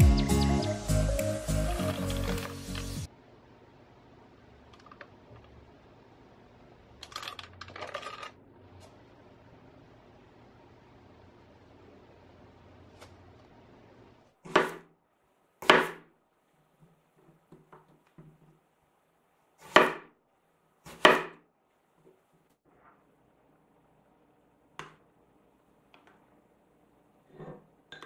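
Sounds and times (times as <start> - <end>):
knife chopping on cutting board: 14.5 - 14.9, 15.6 - 16.1, 19.6 - 20.1, 20.8 - 21.4.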